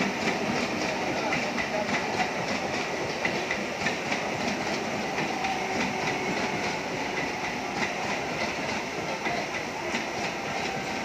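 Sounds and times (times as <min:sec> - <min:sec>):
train running rumble: 0:00.0 - 0:11.0
train wheels clattering over rail joints: 0:00.0 - 0:11.0.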